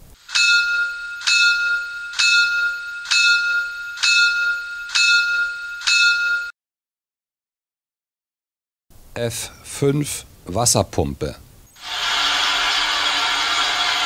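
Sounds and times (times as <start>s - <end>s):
locomotive bell ringing: 0.2s - 6.5s.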